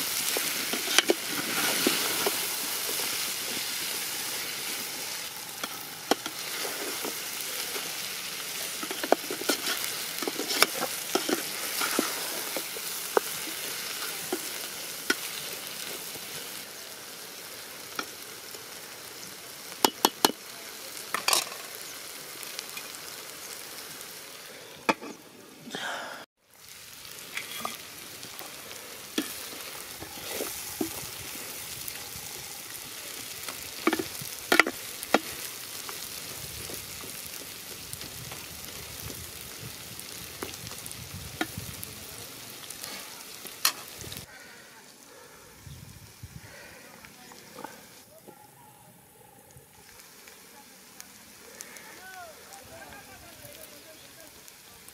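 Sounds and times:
curry sizzling in a pot: 0:00.0 - 0:25.6, 0:26.4 - 0:48.7, 0:49.6 - 0:54.9
metal spatula scraping a pot: 0:08.6 - 0:12.6.

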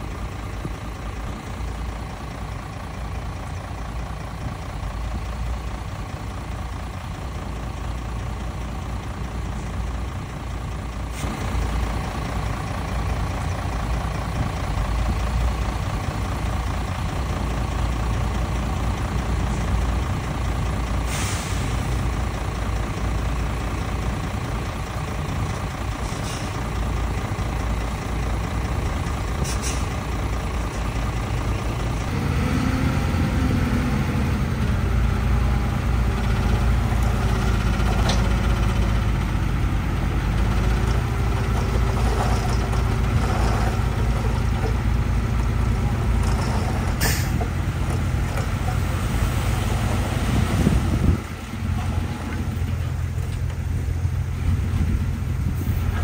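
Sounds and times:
diesel truck engines running: 0:00.0 - 0:56.0
air brake hisses: 0:21.1 - 0:21.8, 0:29.4 - 0:29.9, 0:47.0 - 0:47.4.

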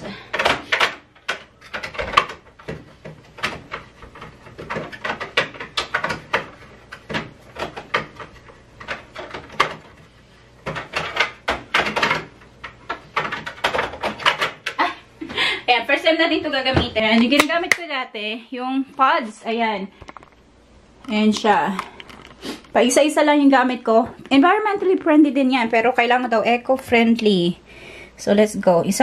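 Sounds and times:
clicks and knocks at washing machine: 0:00.1 - 0:10.0, 0:10.6 - 0:14.9.

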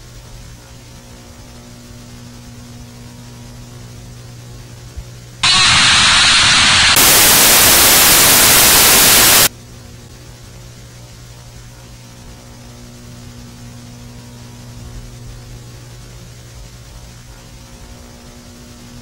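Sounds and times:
low electrical hum: 0:00.0 - 0:19.0
tv static hiss: 0:05.4 - 0:09.5.

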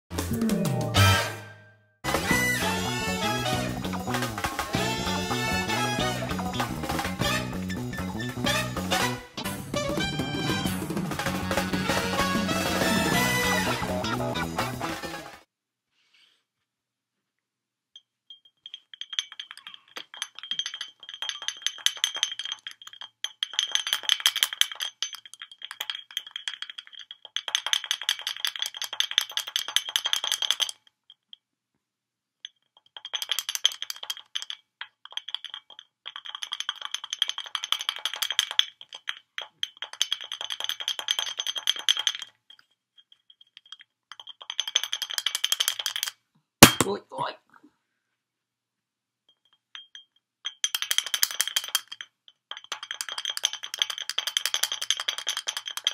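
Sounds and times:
beak tapping on glass bottle: 0:18.0 - 0:31.4, 0:32.5 - 0:47.0.

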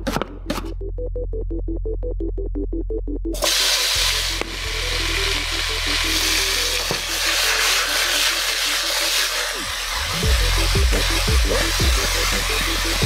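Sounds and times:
meat sizzling in hot oil: 0:03.4 - 0:13.0.

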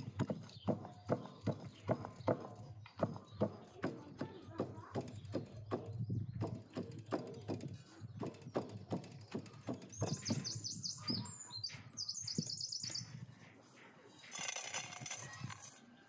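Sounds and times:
stone pounding walnuts in metal dish: 0:00.0 - 0:10.4
songbird chirping: 0:00.0 - 0:16.0.

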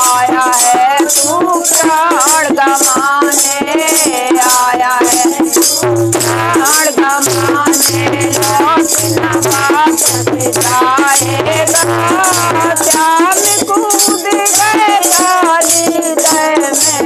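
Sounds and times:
shaken rattle beat: 0:00.0 - 0:17.0
women singing devotional song: 0:00.0 - 0:17.0.

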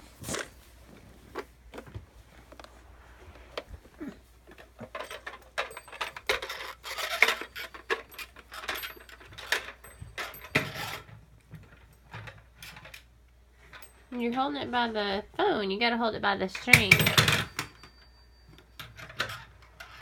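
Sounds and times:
plastic toy rattling on floor: 0:04.4 - 0:14.5, 0:16.6 - 0:20.0.

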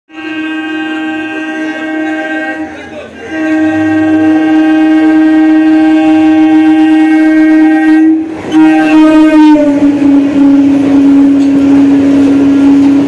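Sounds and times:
train horn blasts: 0:00.1 - 0:13.0.

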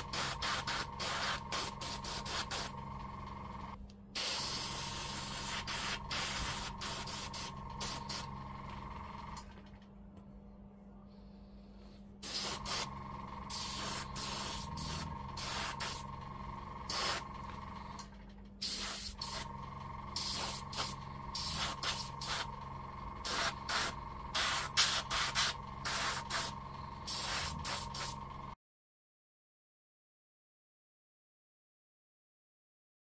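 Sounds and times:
spray paint hissing: 0:00.0 - 0:02.8, 0:04.2 - 0:08.3, 0:12.2 - 0:12.9, 0:13.5 - 0:16.1, 0:16.8 - 0:17.3, 0:18.6 - 0:19.5, 0:20.2 - 0:22.6, 0:23.2 - 0:28.2
steady hum: 0:00.0 - 0:28.6.

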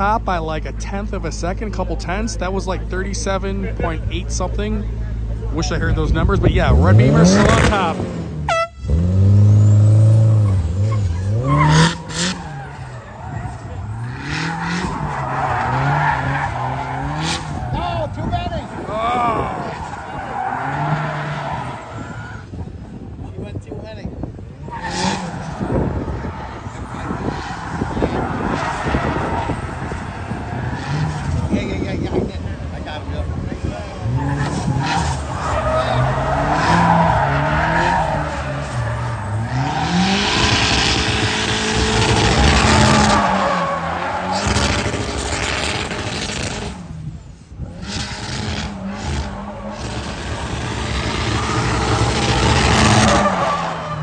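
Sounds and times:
tire screeching: 0:00.0 - 0:54.0
car engine at high revs: 0:03.6 - 0:54.0
tyres scrubbing on asphalt: 0:10.8 - 0:22.4, 0:24.6 - 0:47.0.

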